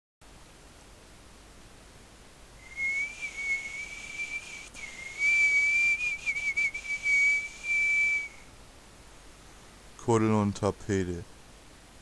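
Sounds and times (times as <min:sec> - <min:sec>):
person whistling high note: 0:02.6 - 0:08.4.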